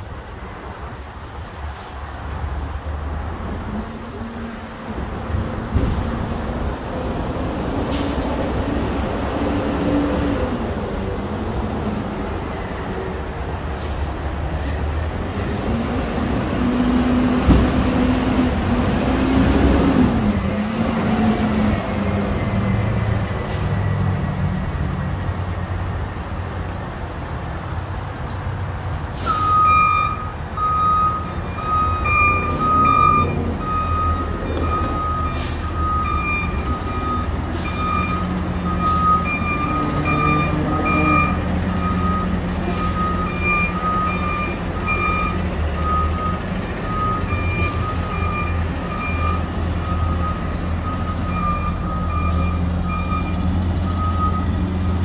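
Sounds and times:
garbage truck engine whine: 29.2s - 55.0s
backup alarm beeping: 29.3s - 55.0s.

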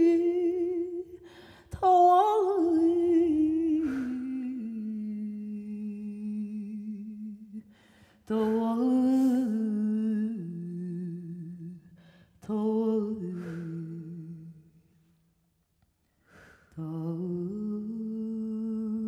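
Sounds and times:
person breathing: 1.2s - 1.7s, 3.8s - 4.2s, 7.6s - 8.6s, 11.9s - 12.4s, 13.3s - 14.0s, 16.0s - 16.9s.

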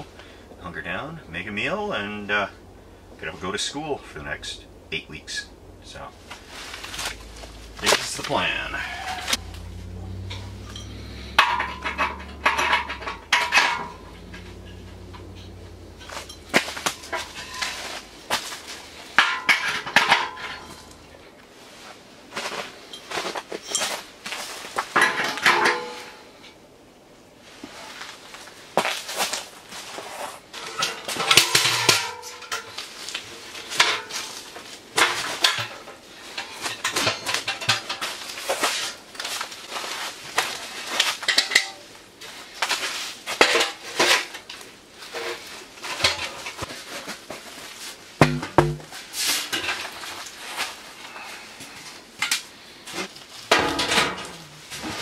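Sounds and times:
metallic scrapes: 6.3s - 21.2s
metal stove parts clanking: 6.7s - 21.2s, 25.0s - 26.2s, 30.6s - 39.0s, 41.0s - 41.9s, 45.8s - 46.7s, 53.4s - 55.0s.

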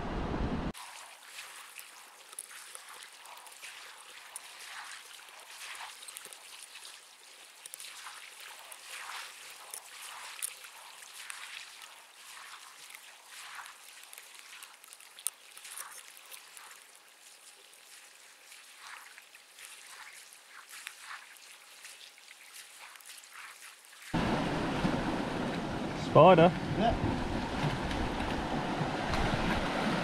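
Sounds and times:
wind on microphone: 0.0s - 0.7s, 26.6s - 30.0s
small clicks and crackles: 1.1s - 24.1s.

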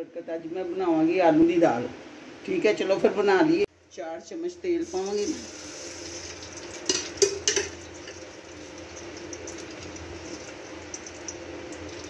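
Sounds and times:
background hiss: 0.4s - 12.0s
metal spoon clinking on pot: 6.9s - 8.2s.

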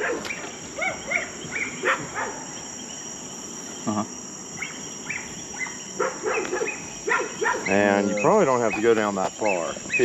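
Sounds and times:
crickets trilling: 0.0s - 10.0s
short chirping calls: 3.7s - 10.0s.

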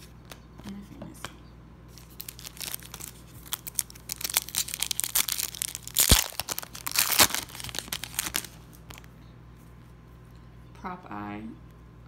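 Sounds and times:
plastic pack crinkling and tearing: 1.9s - 9.1s.

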